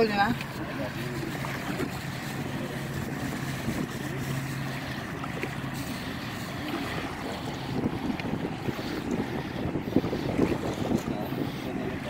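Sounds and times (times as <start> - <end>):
motorboat engine drone: 0.0 - 12.0
wind noise on microphone: 1.6 - 4.6, 6.6 - 12.0.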